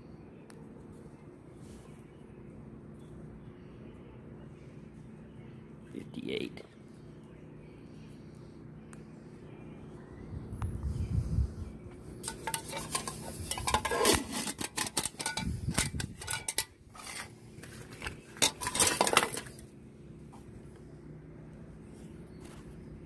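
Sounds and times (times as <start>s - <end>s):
metal on metal knocks: 12.2s - 17.2s
metal mess kit clinking: 12.2s - 17.3s, 18.0s - 19.6s.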